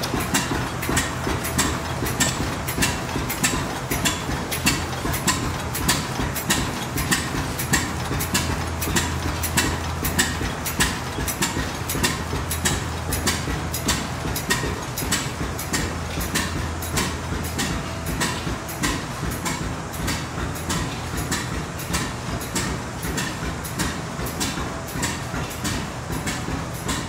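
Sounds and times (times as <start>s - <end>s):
stationary gas engines knocking: 0.0s - 27.0s.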